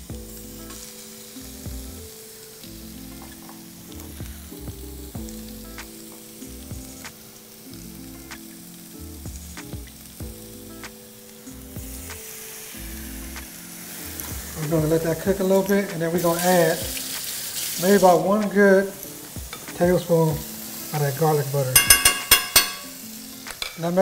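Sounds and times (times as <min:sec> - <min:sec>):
background music with low notes: 0:00.0 - 0:24.0
food sizzling in oil: 0:00.0 - 0:24.0
oil popping: 0:11.8 - 0:24.0.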